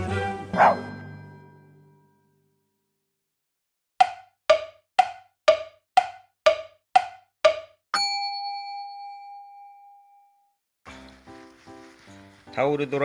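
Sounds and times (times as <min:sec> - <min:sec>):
sharp knocks alternating pitch: 0:04.0 - 0:08.2
bell-like ding: 0:08.0 - 0:10.5.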